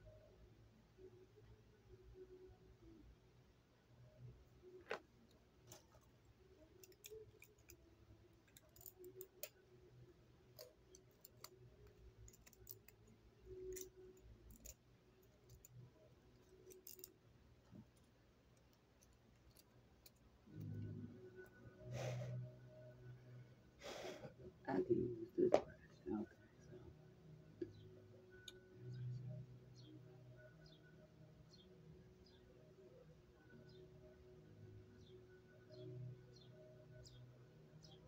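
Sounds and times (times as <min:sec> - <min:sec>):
small clicks: 0:04.7 - 0:09.6.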